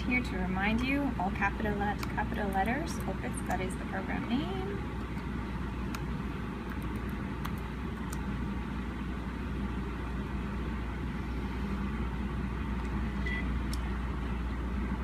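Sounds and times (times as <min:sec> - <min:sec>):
steady low hum: 0:00.0 - 0:15.0
laptop keys clicking: 0:05.9 - 0:08.3
high beep: 0:13.2 - 0:13.5.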